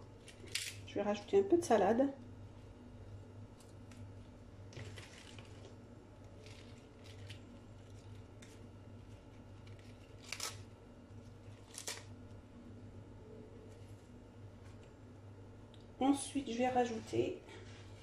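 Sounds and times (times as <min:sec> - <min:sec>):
faint low hum: 0:00.0 - 0:18.0
lettuce leaves crackling: 0:00.2 - 0:00.9, 0:03.5 - 0:12.3.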